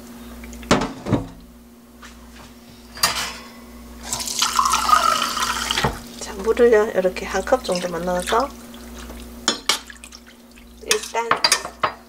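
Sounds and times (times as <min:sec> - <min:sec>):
water pouring into glass: 0:04.0 - 0:06.2
kitchen faucet running: 0:04.0 - 0:11.8.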